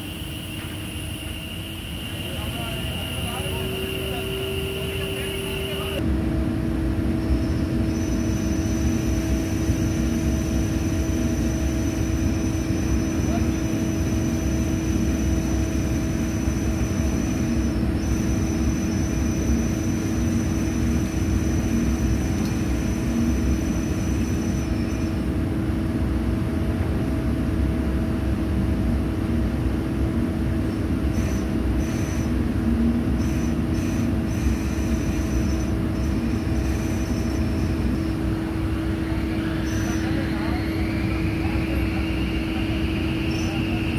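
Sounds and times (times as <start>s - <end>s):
faint high whine: 0.0s - 25.6s, 30.8s - 43.9s
drilling rig machinery humming: 0.0s - 26.3s, 30.2s - 43.9s.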